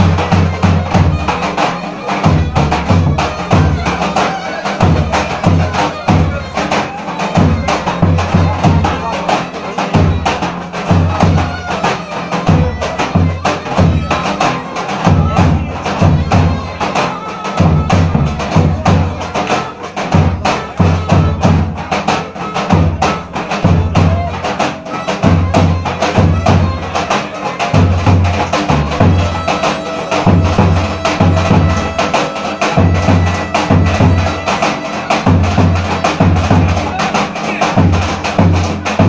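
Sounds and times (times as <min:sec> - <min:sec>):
sharp percussion strokes: 0:00.0 - 0:39.0.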